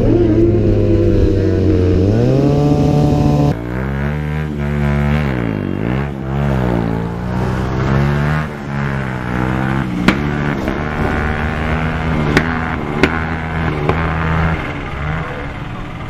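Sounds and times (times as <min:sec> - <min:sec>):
motorcycle engine revving: 0:00.0 - 0:16.0.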